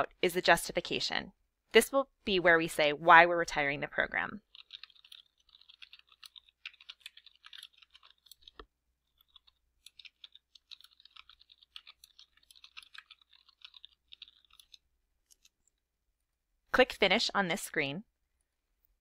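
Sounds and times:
rapid keyboard typing: 0:04.4 - 0:15.6.

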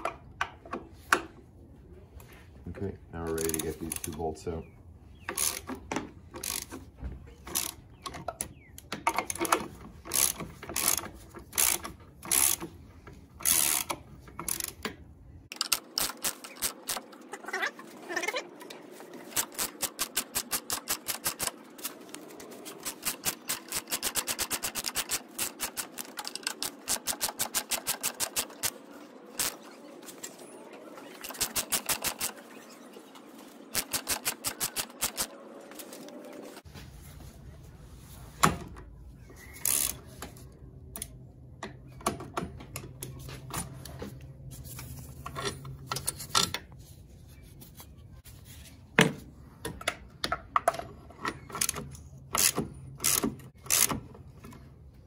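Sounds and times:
socket ratchet clicking: 0:31.3 - 0:32.4, 0:33.8 - 0:35.3.

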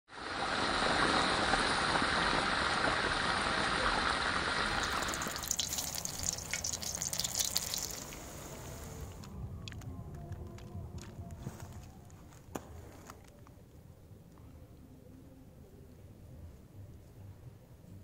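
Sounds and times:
food deep-frying in hot oil: 0:00.1 - 0:08.7
steady dense hiss: 0:00.2 - 0:09.3.

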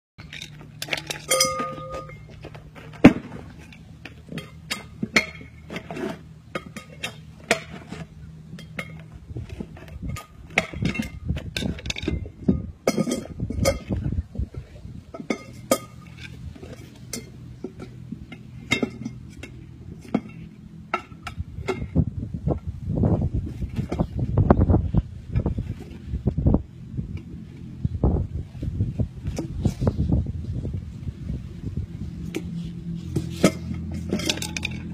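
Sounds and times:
metallic clinks and knocks: 0:00.2 - 0:14.1, 0:33.2 - 0:34.9
ringing metal clang: 0:01.0 - 0:02.4.

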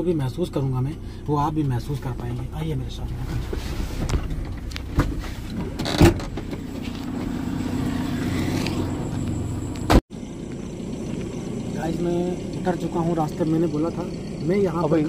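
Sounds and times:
car engine running: 0:00.0 - 0:15.0
car door opening: 0:03.3 - 0:10.0.

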